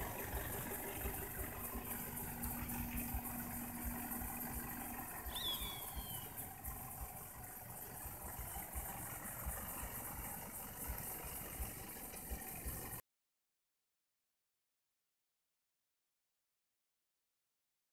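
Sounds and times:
irregular low rumble: 0.0s - 13.0s
truck engine idling: 0.0s - 13.0s
high descending chirp: 5.3s - 6.4s.

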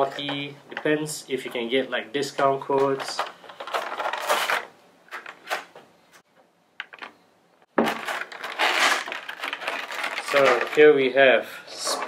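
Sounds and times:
plastic tray crackling: 7.8s - 11.2s
cardboard box rustling: 7.9s - 10.8s.

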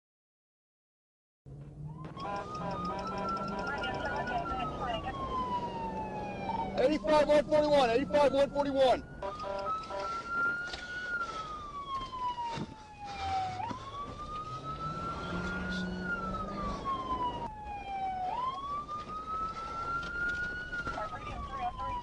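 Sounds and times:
emergency siren wailing: 1.5s - 22.0s.

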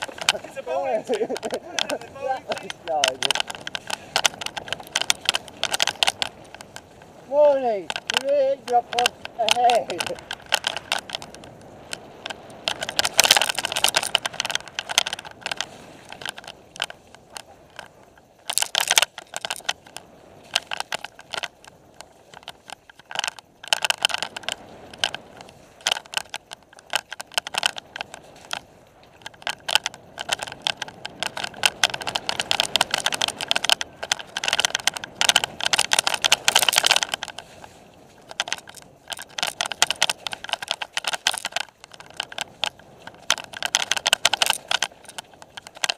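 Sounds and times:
bicycle rattling on dirt trail: 0.0s - 45.9s.

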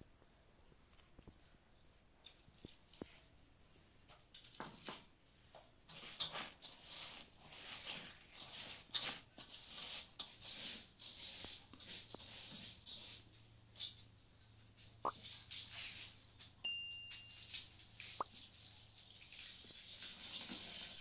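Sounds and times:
rice scraping in metal bowl: 5.9s - 14.1s.

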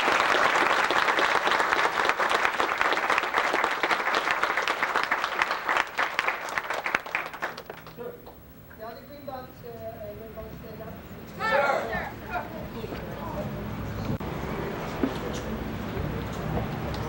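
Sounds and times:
students applauding: 0.0s - 8.1s.

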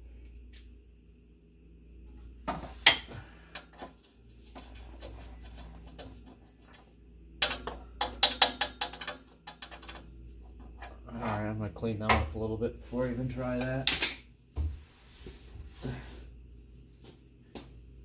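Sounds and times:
metal tools clanking: 13.6s - 14.3s.

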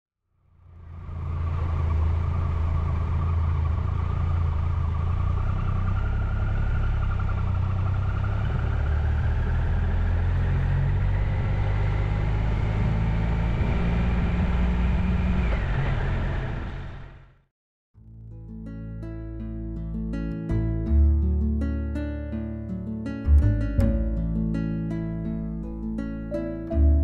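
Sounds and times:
thin whine rising in pitch: 0.5s - 17.2s
motorcycle engine running: 0.7s - 15.1s.

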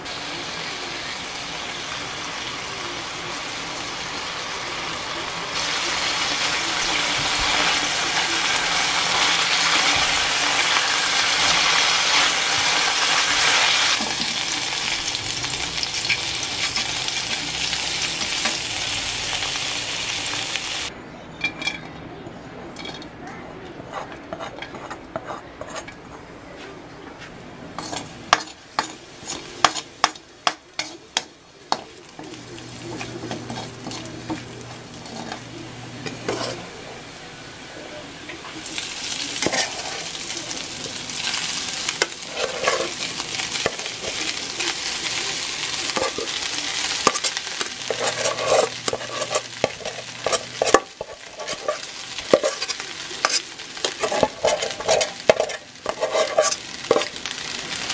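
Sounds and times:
garlic sizzling in oil: 0.0s - 20.9s, 38.4s - 57.9s
spatula scraping a wok: 23.8s - 26.2s, 27.7s - 36.7s, 38.8s - 57.9s.

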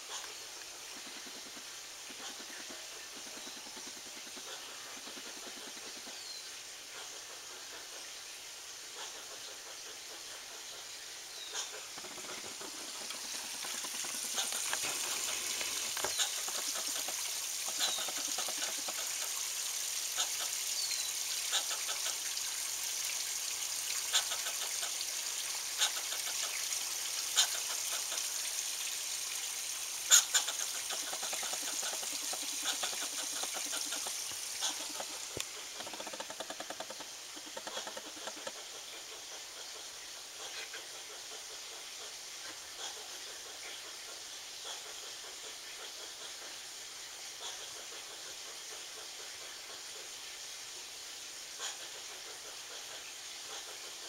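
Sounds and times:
steady hiss: 0.0s - 54.0s
squirrel alarm calls: 11.4s - 18.9s, 30.1s - 38.6s.

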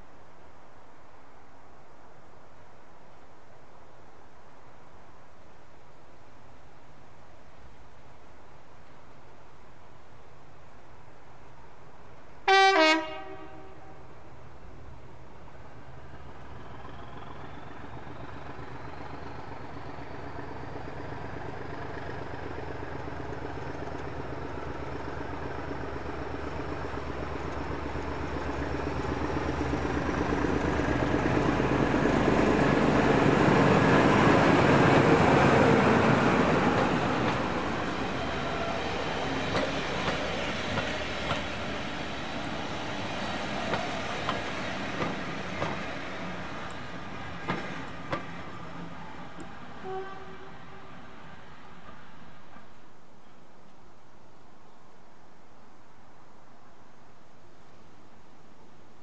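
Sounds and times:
diesel locomotive engine passing: 11.0s - 53.7s
train wheels clicking over rail joints: 15.6s - 49.8s.

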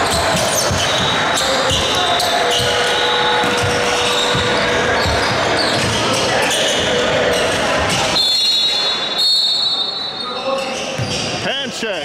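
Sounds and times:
basketball bouncing on hardwood floor: 3.4s - 6.0s.

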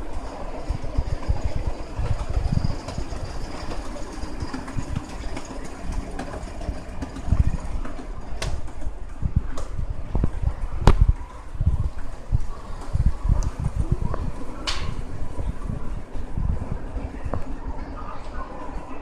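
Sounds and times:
escalator mechanical rumble: 0.0s - 19.0s
low thumps: 10.1s - 11.8s.

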